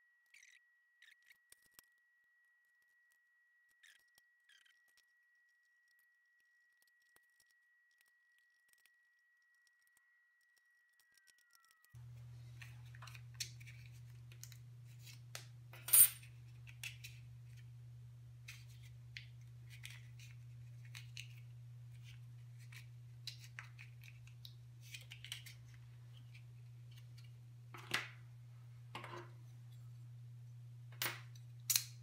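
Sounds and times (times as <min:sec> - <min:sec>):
steady low hum: 0:12.0 - 0:32.0
knife parts clicking and tapping: 0:31.0 - 0:32.0.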